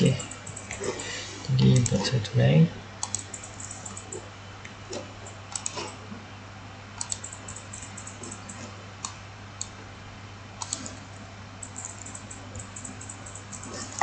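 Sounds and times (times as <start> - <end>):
computer mouse and keyboard clicks: 0.0 - 2.0, 3.0 - 4.3, 4.9 - 6.0, 7.0 - 9.8, 10.6 - 11.0, 11.6 - 14.0
steady low hum: 0.0 - 14.0.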